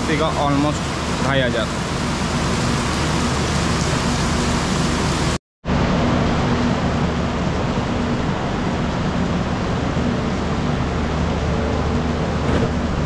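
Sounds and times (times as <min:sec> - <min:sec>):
heavy rain hiss: 0:00.0 - 0:05.4
train coach hum: 0:05.7 - 0:13.0.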